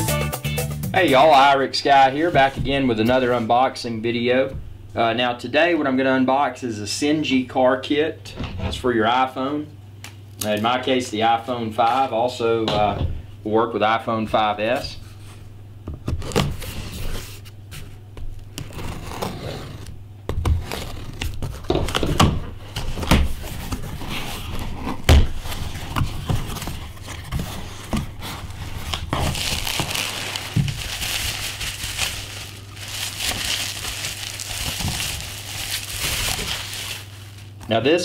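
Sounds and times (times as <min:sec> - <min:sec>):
steady low hum: 0:01.1 - 0:38.0
cardboard box flaps scraping: 0:18.6 - 0:19.9, 0:22.7 - 0:31.0
bubble wrap crinkling: 0:20.5 - 0:37.8.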